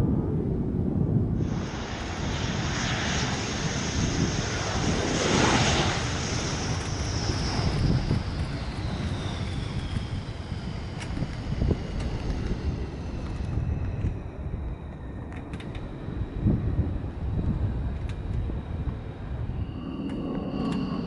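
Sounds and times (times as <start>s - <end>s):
jet engine roar with whine: 0.0s - 21.0s.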